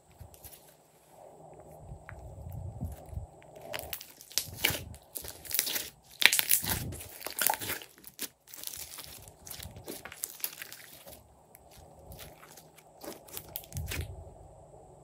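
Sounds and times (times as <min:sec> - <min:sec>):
slime crackling and squelching: 0:02.8 - 0:14.2.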